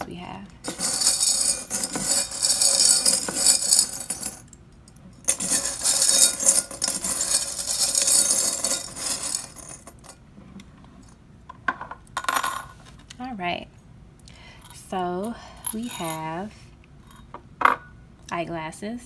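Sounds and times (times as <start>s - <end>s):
metal charms rattling in glass: 0.6s - 4.6s, 5.2s - 10.2s, 15.4s - 16.4s.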